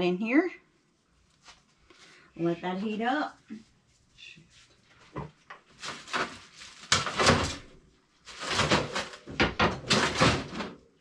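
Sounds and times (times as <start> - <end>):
rummaging rustles and knocks: 5.1 - 10.9.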